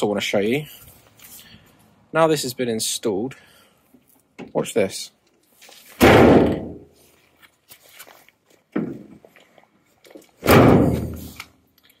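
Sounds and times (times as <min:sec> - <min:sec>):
van doors thudding shut: 0:06.0 - 0:06.8, 0:10.4 - 0:11.4.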